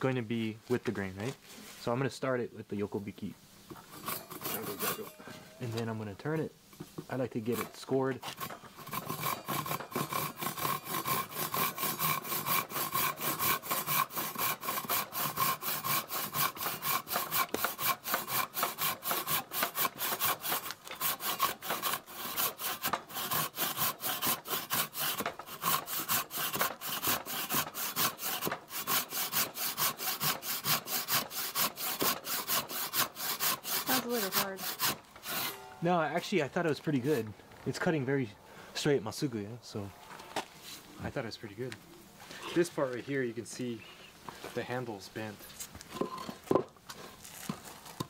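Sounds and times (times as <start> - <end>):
hand saw rasping through wood: 3.8 - 5.2, 7.4 - 35.6.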